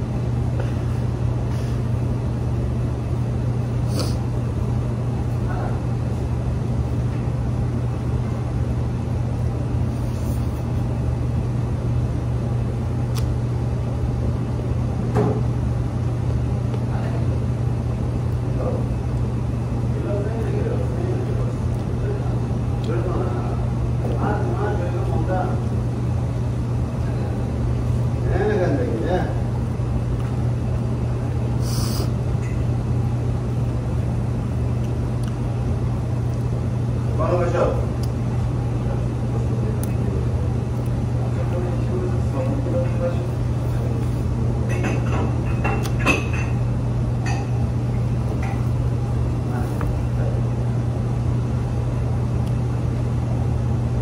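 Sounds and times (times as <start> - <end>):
low machine hum: 0.0 - 54.0
faint eating noises: 16.6 - 32.8, 34.0 - 52.8.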